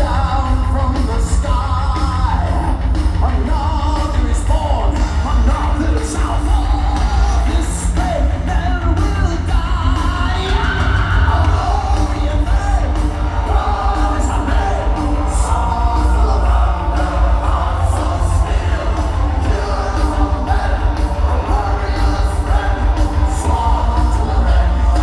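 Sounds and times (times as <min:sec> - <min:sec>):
heavy metal band playing live: 0:00.0 - 0:25.0
voices singing and yelling: 0:00.0 - 0:25.0
heavy booming bass: 0:06.5 - 0:25.0.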